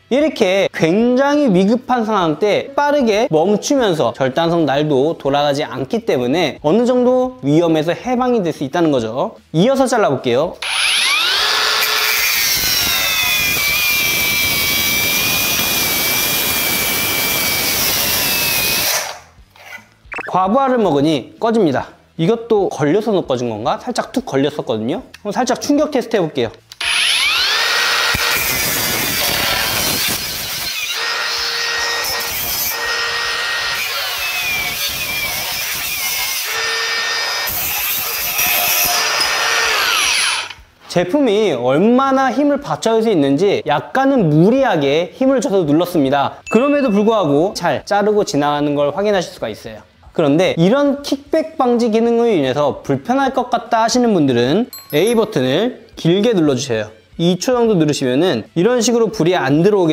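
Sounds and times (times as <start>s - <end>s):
angle grinder cutting steel: 10.6s - 19.2s, 26.8s - 40.6s.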